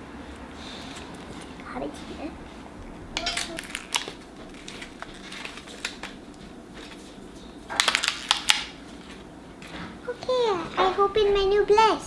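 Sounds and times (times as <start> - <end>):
sharp plastic cracks: 3.2 - 6.3, 7.7 - 8.8
plastic packaging clicks and crinkles: 3.2 - 9.8.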